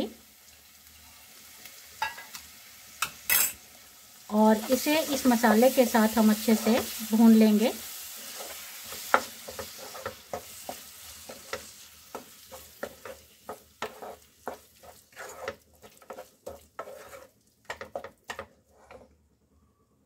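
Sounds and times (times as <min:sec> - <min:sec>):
food sizzling: 0:00.0 - 0:19.1
spatula scraping a pan: 0:04.6 - 0:19.2.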